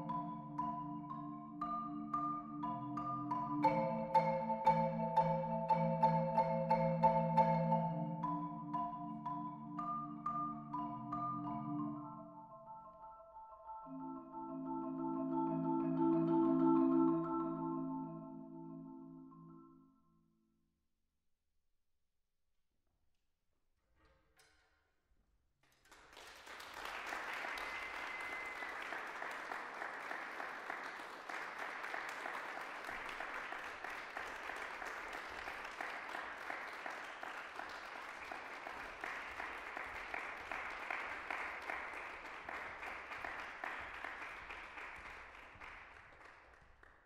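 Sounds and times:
audience applauding: 0:25.7 - 0:47.0
short high whistle: 0:27.6 - 0:28.8.

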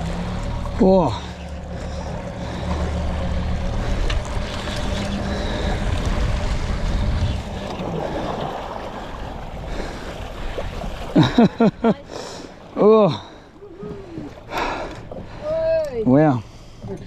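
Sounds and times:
small boat motor humming: 0:00.0 - 0:17.0
water wash: 0:00.0 - 0:17.0
wind: 0:00.0 - 0:17.0.

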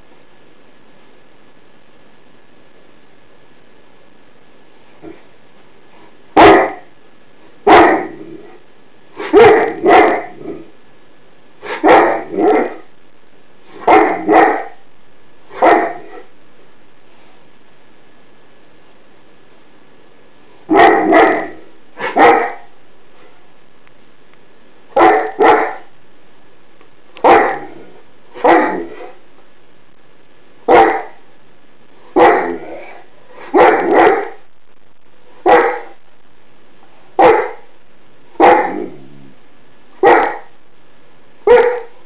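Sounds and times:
dog barking: 0:06.4 - 0:06.9, 0:07.6 - 0:08.6, 0:09.2 - 0:10.7, 0:11.6 - 0:12.9, 0:13.7 - 0:14.8, 0:15.5 - 0:16.3, 0:20.7 - 0:22.7, 0:25.0 - 0:25.9, 0:27.2 - 0:29.2, 0:30.7 - 0:31.2, 0:32.1 - 0:34.4, 0:35.4 - 0:36.0, 0:37.2 - 0:37.7, 0:38.4 - 0:39.0, 0:40.0 - 0:40.6, 0:41.4 - 0:42.0.

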